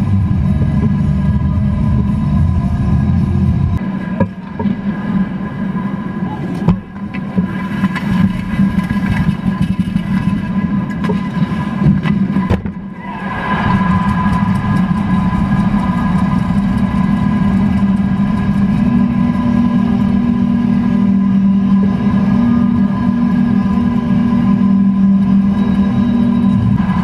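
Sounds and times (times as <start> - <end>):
crowd cheering: 12.9 - 27.0.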